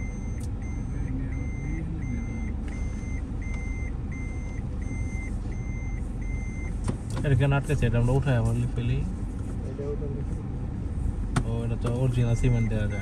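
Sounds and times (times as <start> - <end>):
car warning chime beeping: 0.0 - 6.8, 11.9 - 13.0
engine and road rumble: 0.0 - 13.0.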